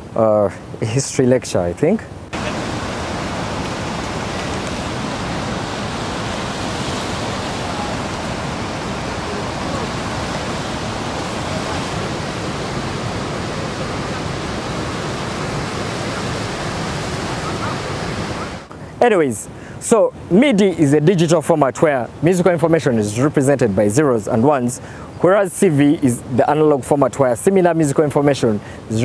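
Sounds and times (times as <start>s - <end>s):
river rapids rushing: 2.3s - 18.7s.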